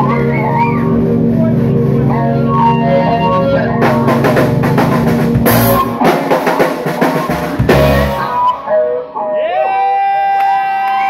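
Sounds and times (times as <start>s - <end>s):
pedal steel guitar: 0.0s - 6.3s
keyboard: 0.0s - 10.0s
drum fills: 3.8s - 8.6s
cymbal crashes: 3.9s - 8.4s.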